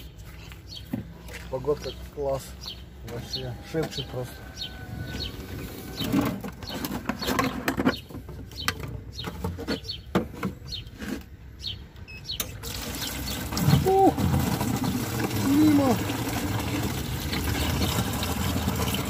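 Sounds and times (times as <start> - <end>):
birds chirping: 0.0 - 19.0
plastic flasks clattering: 13.4 - 19.0.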